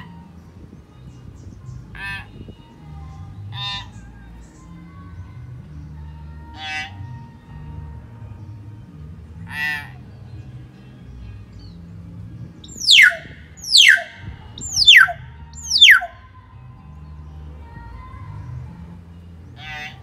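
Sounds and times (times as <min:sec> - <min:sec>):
buzzy bird call: 0:12.6 - 0:16.1.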